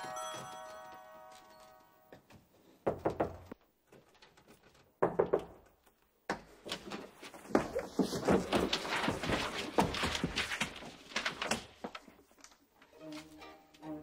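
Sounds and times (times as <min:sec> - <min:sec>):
scuffling and bumping: 0:06.6 - 0:12.4.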